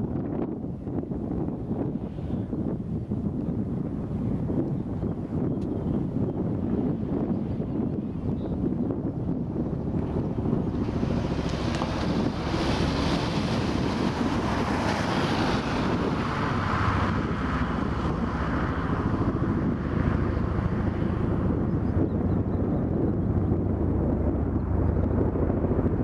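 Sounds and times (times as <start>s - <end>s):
higher rushing noise: 9.6s - 22.3s.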